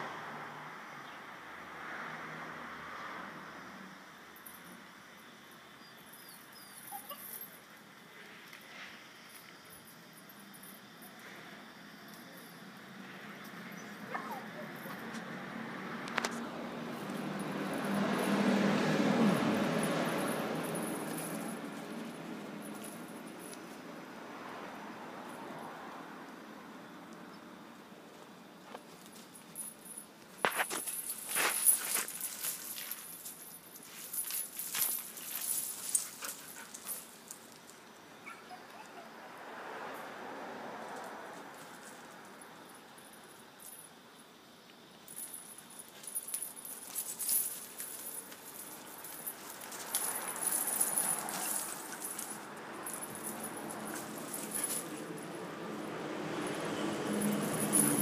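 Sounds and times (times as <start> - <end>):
light metallic jingle: 3.7 - 27.5, 28.1 - 39.1, 40.8 - 58.0
metal chain jangling: 6.1 - 7.8, 13.4 - 15.4, 16.2 - 24.0, 28.8 - 38.8, 44.9 - 58.0
dogs playing: 13.3 - 23.9, 28.8 - 39.0, 45.1 - 58.0
paws scuffing through dry dirt: 30.4 - 33.2.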